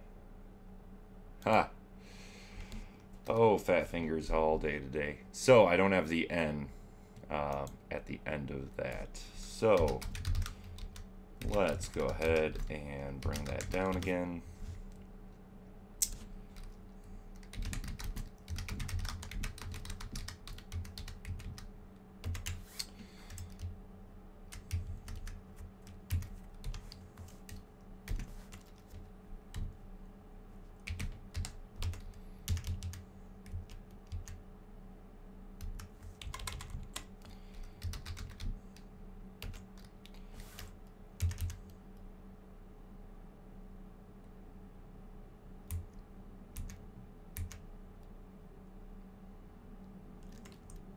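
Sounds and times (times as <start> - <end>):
steady low hum: 0.0 - 50.9
typing on computer keyboard: 9.7 - 14.1, 17.4 - 22.6, 24.5 - 29.0, 30.8 - 34.4, 35.6 - 38.6, 39.4 - 40.2, 41.2 - 41.6, 47.4 - 47.6.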